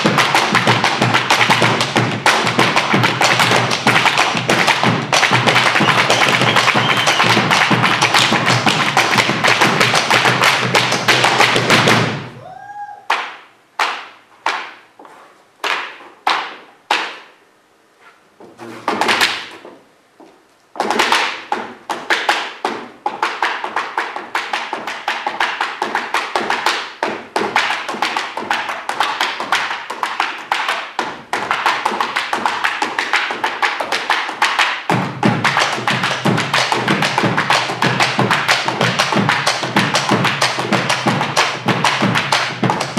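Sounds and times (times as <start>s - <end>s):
feet tapping on wooden stage: 0.0s - 12.4s, 13.1s - 17.3s, 18.4s - 42.9s
drums beating: 0.0s - 12.6s, 34.8s - 42.9s.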